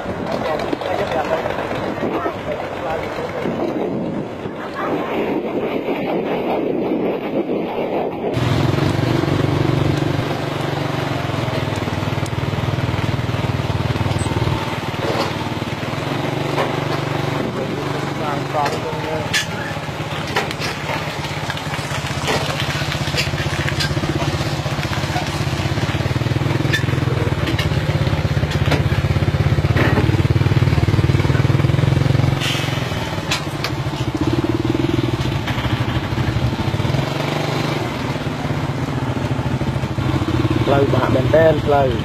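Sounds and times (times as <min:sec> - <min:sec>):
engine running: 0:00.0 - 0:05.0, 0:08.3 - 0:42.0.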